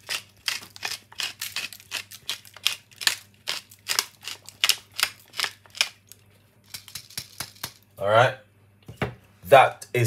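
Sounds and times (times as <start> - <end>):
pepper mill grinding: 0.0 - 6.1.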